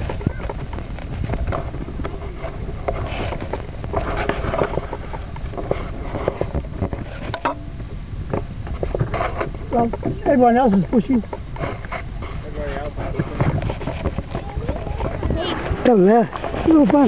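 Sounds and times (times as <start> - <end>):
wind rumbling on microphone: 0.0 - 17.0
paddles splashing in water: 13.0 - 17.0.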